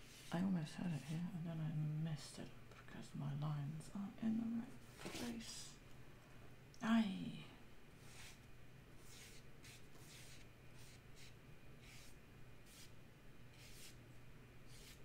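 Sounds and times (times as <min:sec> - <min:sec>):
paintbrush swishing on paper: 0:00.0 - 0:00.4, 0:08.0 - 0:08.4, 0:09.0 - 0:14.0, 0:14.7 - 0:15.0
low steady hum: 0:00.0 - 0:15.0.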